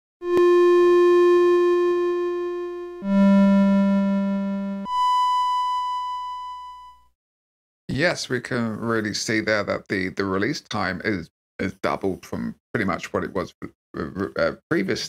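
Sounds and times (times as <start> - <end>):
synthesizer notes: 0.2 - 6.2.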